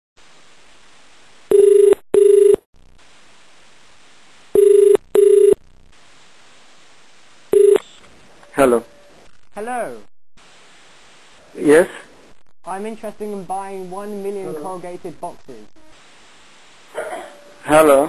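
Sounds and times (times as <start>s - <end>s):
telephone ringback tone: 1.5s - 2.6s, 4.6s - 5.6s, 7.6s - 7.8s.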